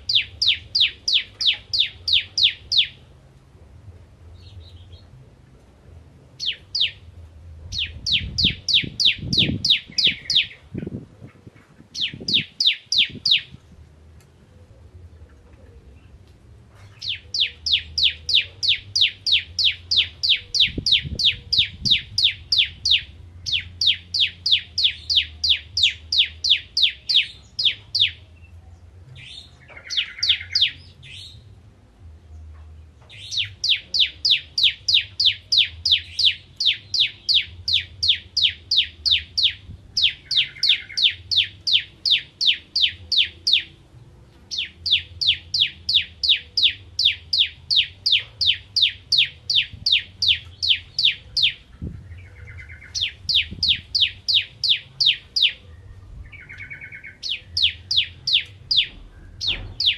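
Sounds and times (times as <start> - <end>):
bird singing rapid sharp notes: 0.0 - 3.0, 6.4 - 7.1, 7.7 - 11.0, 11.9 - 13.6, 17.0 - 28.2, 29.2 - 31.4, 33.1 - 43.8, 44.5 - 59.9.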